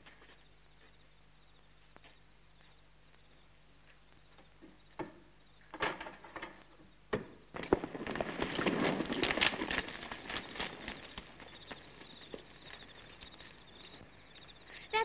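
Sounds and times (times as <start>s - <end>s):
horses' hooves clattering: 3.8s - 14.7s.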